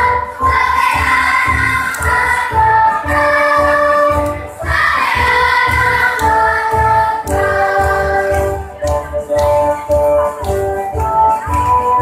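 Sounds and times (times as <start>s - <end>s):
children's choir singing: 0.0s - 9.4s.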